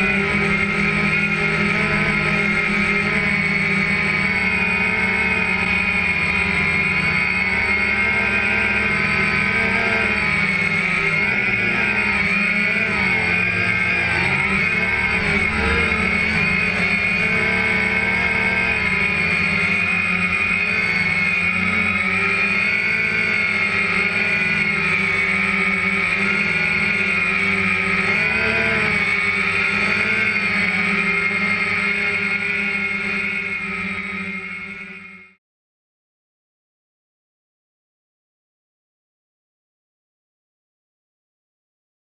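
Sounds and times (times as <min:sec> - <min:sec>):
drone propellers whining: 0:00.0 - 0:35.4.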